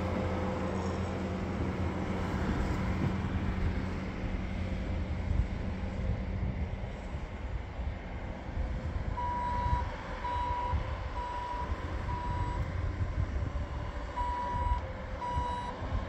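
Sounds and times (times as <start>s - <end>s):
engine running: 0.0s - 16.0s
backup alarm beeping: 9.2s - 12.6s, 14.2s - 15.8s.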